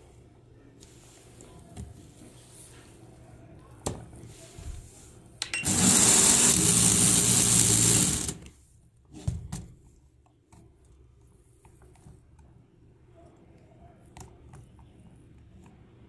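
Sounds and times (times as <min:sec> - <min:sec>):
whir of motor and plastic gears: 0:05.6 - 0:08.5.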